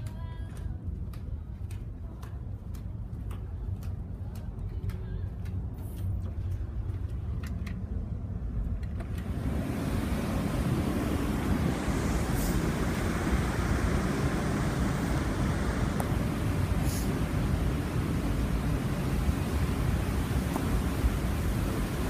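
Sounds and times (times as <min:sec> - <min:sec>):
light ticks: 0:00.0 - 0:07.8
ship engines rumbling: 0:03.2 - 0:22.0
churning ship wake: 0:09.0 - 0:22.0
wind rushing: 0:09.2 - 0:22.0.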